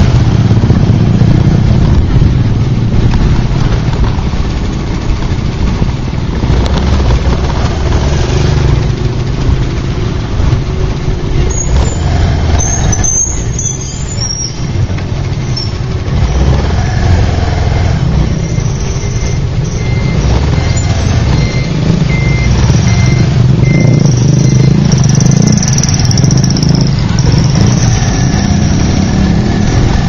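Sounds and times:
motorbike engine rumble: 0:00.0 - 0:30.0
traffic noise: 0:00.0 - 0:30.0
high squeal: 0:11.5 - 0:14.8, 0:18.3 - 0:21.6
short high beeps: 0:18.4 - 0:28.4.

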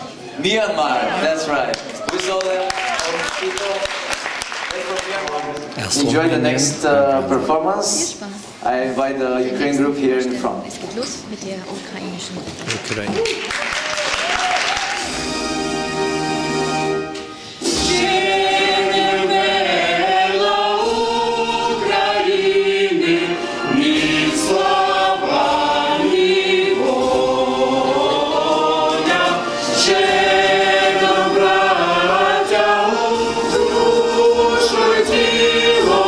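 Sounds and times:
mixed choir singing: 0:17.5 - 0:36.0.

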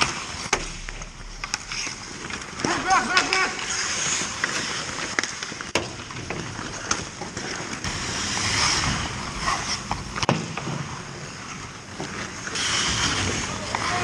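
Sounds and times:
sticks and pucks clacking: 0:00.0 - 0:07.9
skates scraping on ice: 0:00.0 - 0:14.0.

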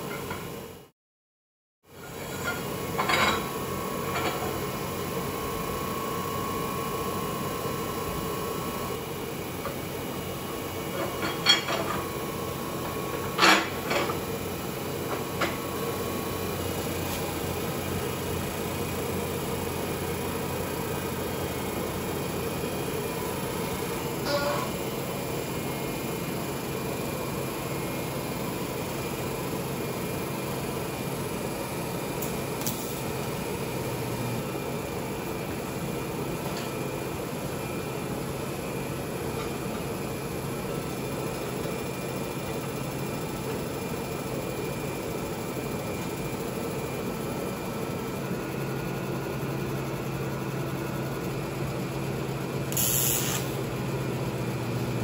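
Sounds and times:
machine hum: 0:01.9 - 0:55.0
short hiss: 0:52.8 - 0:53.6.

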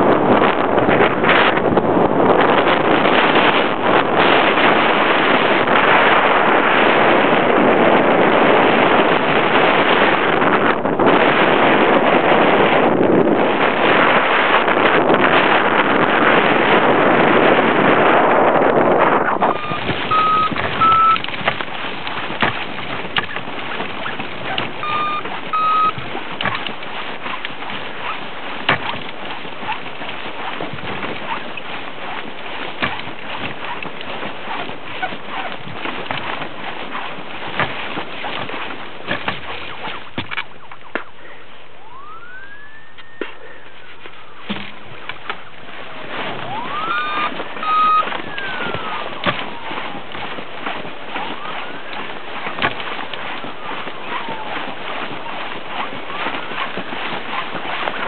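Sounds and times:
wind rushing over microphone: 0:00.0 - 0:58.0
short electronic beeps: 0:19.4 - 0:21.2, 0:24.8 - 0:26.0, 0:46.8 - 0:48.6
clicks and knocks from frame: 0:25.9 - 0:27.6, 0:37.5 - 0:41.1, 0:44.0 - 0:45.4, 0:51.9 - 0:53.4.

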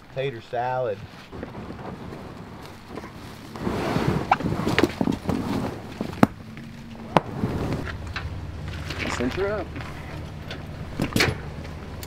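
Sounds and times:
raft dragged through dry leaves: 0:01.0 - 0:08.0.

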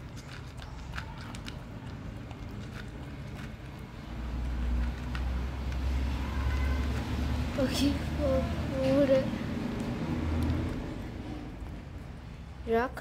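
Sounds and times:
dog crunching dry kibble: 0:00.0 - 0:07.5, 0:09.5 - 0:12.1.

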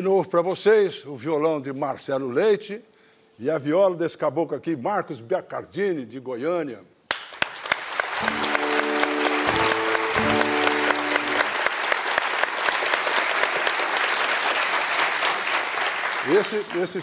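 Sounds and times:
audience applauding: 0:07.1 - 0:17.0
held musical chords: 0:08.2 - 0:11.6.

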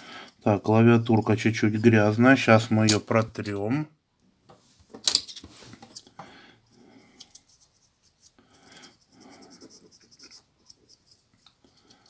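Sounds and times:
cotton swab scratching rubber keypad: 0:09.0 - 0:11.6.

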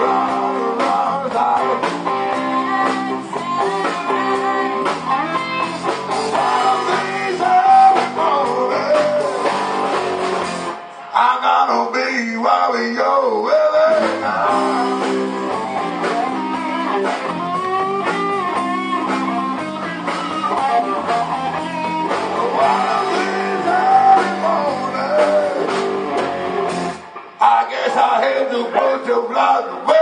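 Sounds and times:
blues-rock band playing: 0:00.0 - 0:11.1, 0:13.4 - 0:29.1
drums: 0:00.0 - 0:30.0
electric guitar bending notes: 0:14.2 - 0:27.4.

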